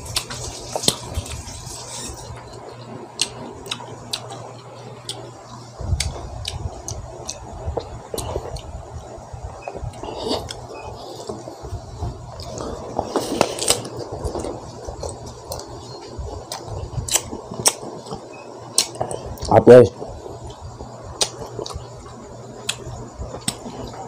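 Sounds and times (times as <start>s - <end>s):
wet chewing and mouth clicks: 2.3s - 8.7s, 12.3s - 19.5s, 20.4s - 23.9s.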